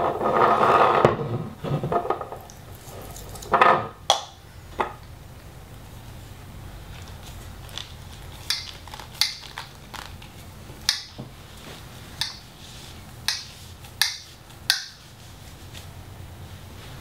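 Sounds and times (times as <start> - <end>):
rag wiping pipe: 11.3 - 17.0.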